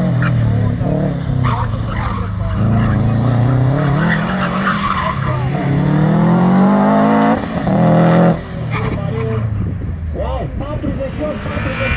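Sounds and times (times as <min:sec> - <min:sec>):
tyres squealing on concrete: 0:01.3 - 0:05.8
car engine revving hard: 0:02.5 - 0:08.5.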